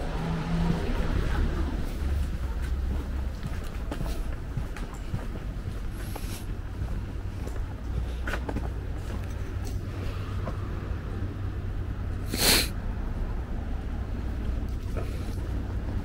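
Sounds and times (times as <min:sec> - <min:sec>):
low street rumble: 0:00.0 - 0:16.0
sharp burst of hissing: 0:12.3 - 0:12.7.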